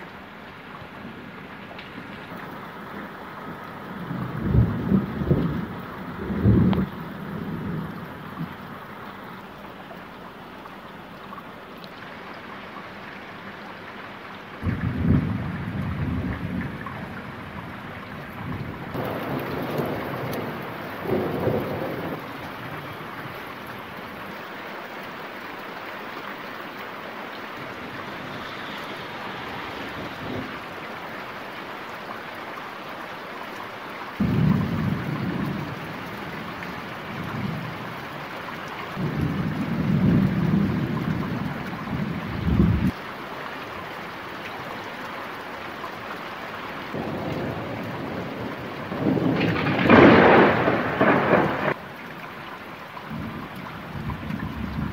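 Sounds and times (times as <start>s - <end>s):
steady rain hissing: 0.0s - 54.9s
low rolling thunder: 4.0s - 8.6s, 14.6s - 23.8s, 34.2s - 38.0s, 39.0s - 43.0s, 46.9s - 51.8s, 53.1s - 54.9s.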